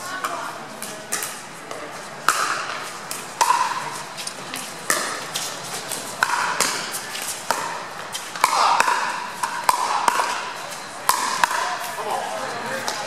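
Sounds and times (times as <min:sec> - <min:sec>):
paddles hitting plastic ball: 0:01.1 - 0:03.8, 0:04.6 - 0:10.4.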